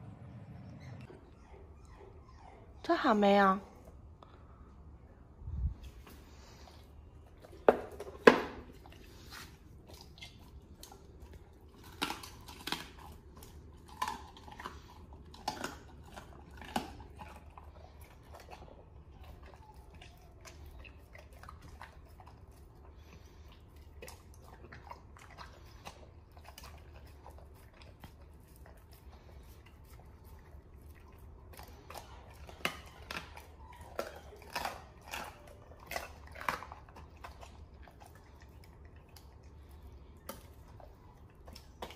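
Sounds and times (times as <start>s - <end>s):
dog chewing raw meat: 6.0s - 41.9s.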